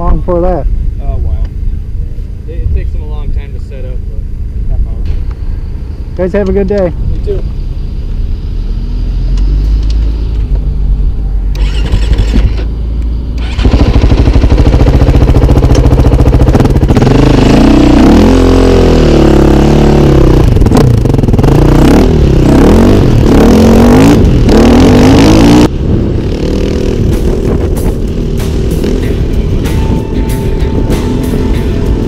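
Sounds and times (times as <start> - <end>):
dirt bike engine revving: 11.5 - 12.7, 13.4 - 32.0.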